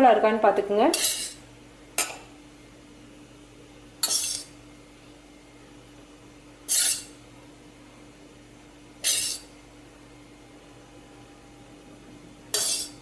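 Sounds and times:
faint steady hum: 0.0 - 13.0
steel spoon clinking on metal: 12.5 - 13.0.

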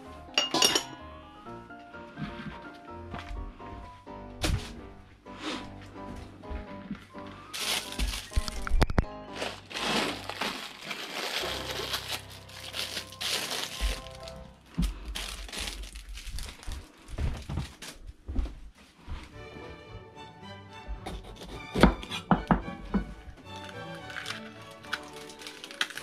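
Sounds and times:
background music: 0.0 - 16.4, 19.1 - 26.0
rustling crackling noise: 4.4 - 19.3, 23.4 - 26.0.

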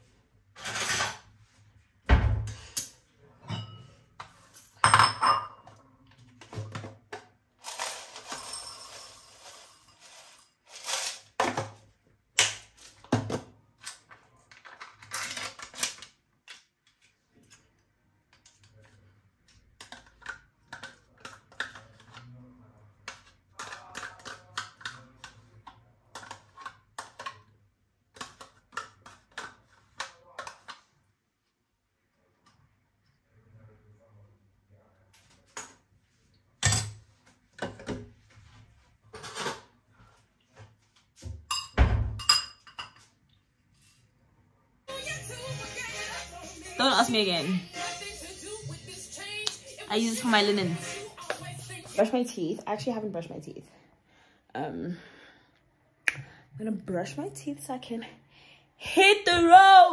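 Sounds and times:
plastic containers clicking and knocking: 19.8 - 22.3, 23.0 - 27.5, 28.1 - 30.9.

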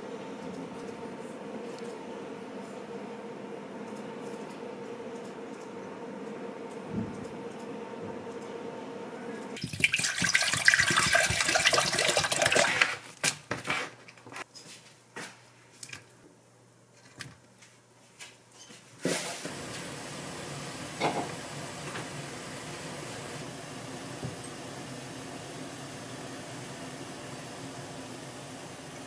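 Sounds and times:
broth bubbling on the boil: 9.6 - 12.8
water running into saucepan: 9.6 - 13.0.

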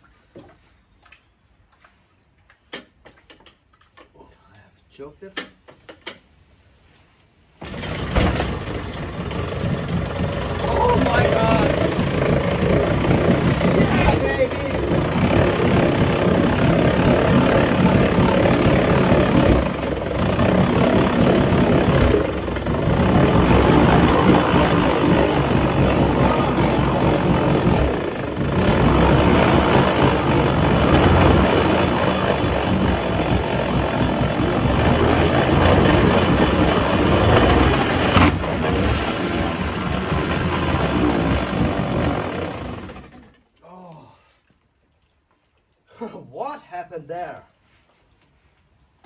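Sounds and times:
outboard engine running: 7.6 - 43.3.

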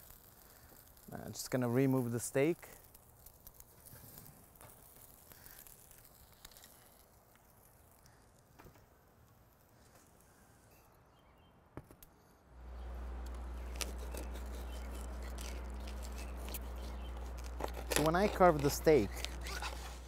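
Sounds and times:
low hum with hiss: 12.4 - 20.0.

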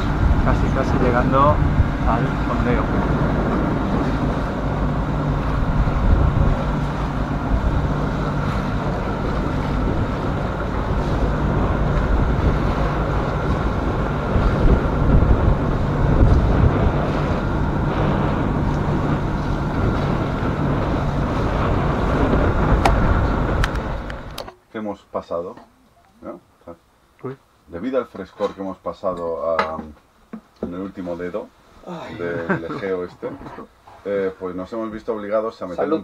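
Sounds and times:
boat engine running: 0.0 - 24.5
wind buffeting microphone: 0.0 - 24.5
water rushing along hull: 0.0 - 24.6, 30.7 - 36.0.

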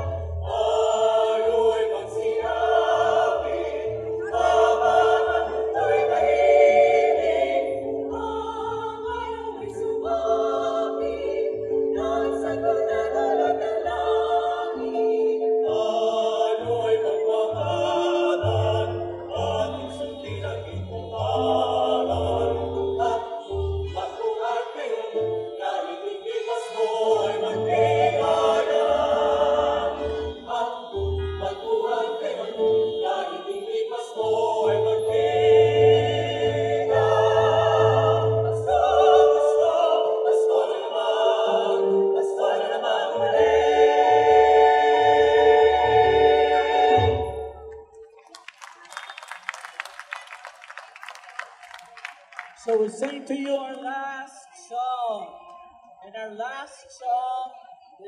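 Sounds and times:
mixed choir singing amplified: 0.0 - 48.3.

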